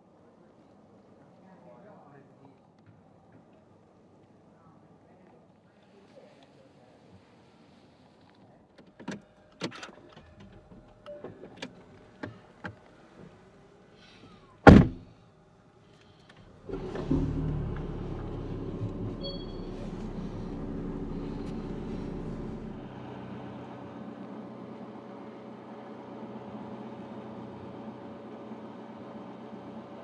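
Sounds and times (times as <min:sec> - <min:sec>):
car door shutting: 0:14.6 - 0:15.0, 0:16.7 - 0:22.7
car engine starting and idling: 0:16.2 - 0:29.8.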